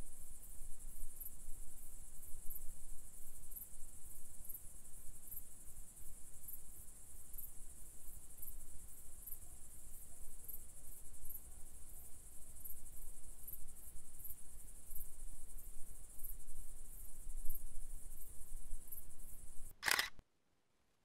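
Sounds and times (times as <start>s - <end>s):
crickets chirring: 0.1s - 20.1s
sharp click: 19.7s - 20.2s.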